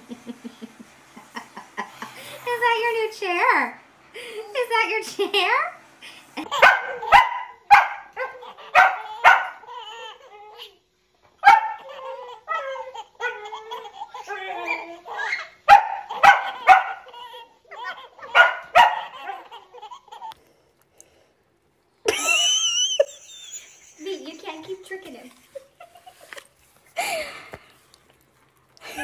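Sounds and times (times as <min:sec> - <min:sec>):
babies laughing: 0:06.4 - 0:07.2, 0:08.1 - 0:10.8, 0:11.7 - 0:20.4
dog barking sharply: 0:06.6 - 0:09.6, 0:11.4 - 0:11.8, 0:15.7 - 0:17.0, 0:18.3 - 0:19.1.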